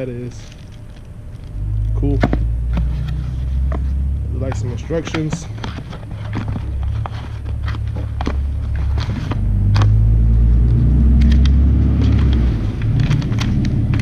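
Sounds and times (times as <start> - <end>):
low rumble: 0.0 - 5.1, 6.6 - 14.0
paper and packaging crinkling: 2.8 - 9.9.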